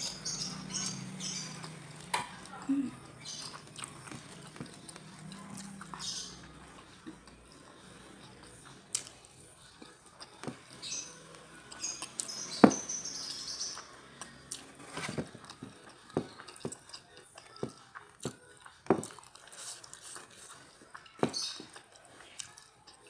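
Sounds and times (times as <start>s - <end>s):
chewing with closed lips: 0.7s - 10.9s, 15.4s - 23.0s.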